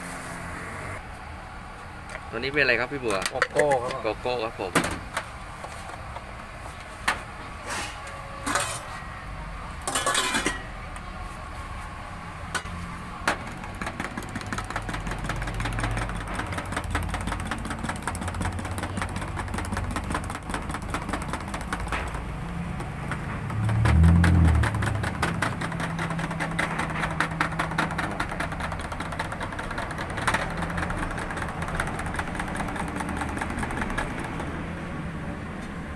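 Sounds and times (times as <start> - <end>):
low engine rumble: 21.6 - 35.9.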